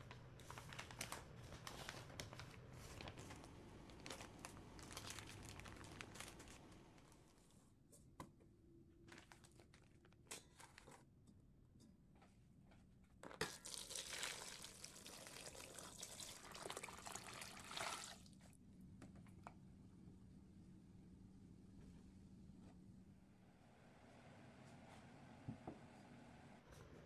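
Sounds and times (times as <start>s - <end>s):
water pouring into metal pot: 13.5s - 18.3s.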